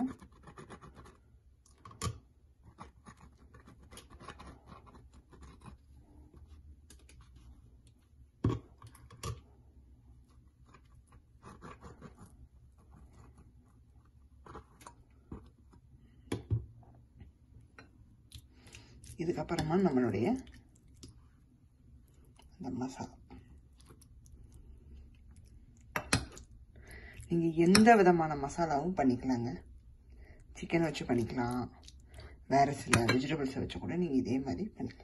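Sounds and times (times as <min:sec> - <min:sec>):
mayonnaise spreading scrapes: 0:10.3 - 0:15.0.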